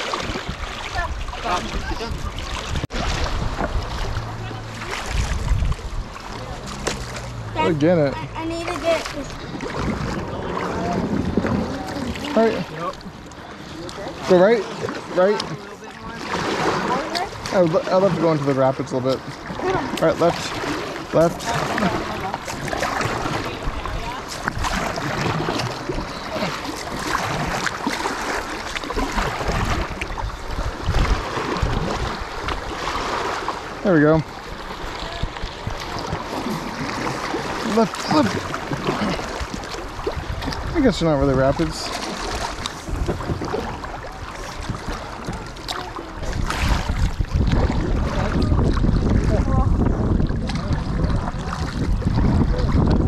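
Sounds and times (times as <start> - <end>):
wind on microphone: 0.0 - 7.2, 8.2 - 13.2, 29.0 - 33.2, 38.1 - 53.0
paddle strokes in water: 0.0 - 53.0
water splashing around kayak: 0.0 - 53.0.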